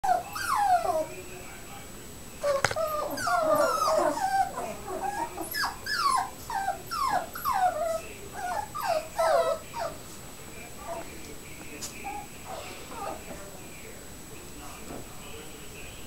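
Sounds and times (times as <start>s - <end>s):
puppies whining and yipping: 0.1s - 1.1s, 2.4s - 10.0s, 12.0s - 13.3s.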